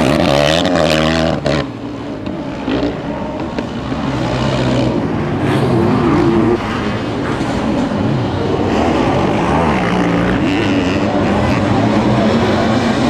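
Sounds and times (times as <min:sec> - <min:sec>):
motorcycle engine revving hard: 0:00.0 - 0:01.8, 0:08.4 - 0:13.0.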